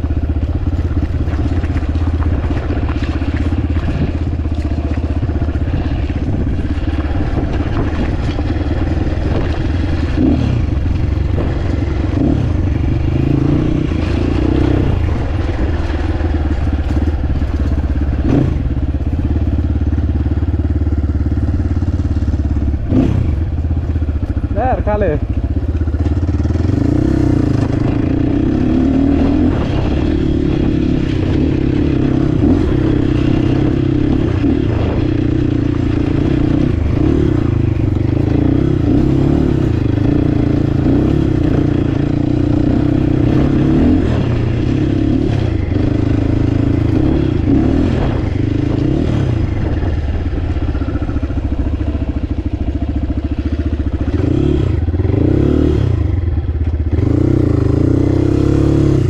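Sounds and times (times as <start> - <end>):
bike clattering over stones: 0.0 - 12.8
dirt bike engine running: 0.0 - 59.0.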